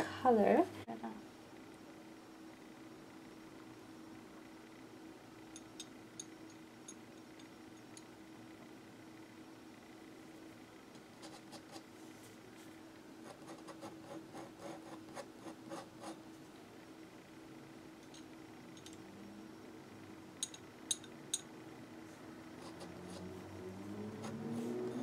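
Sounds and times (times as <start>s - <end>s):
pen nib scratching paper: 11.2s - 11.8s, 13.2s - 16.2s, 22.6s - 23.3s.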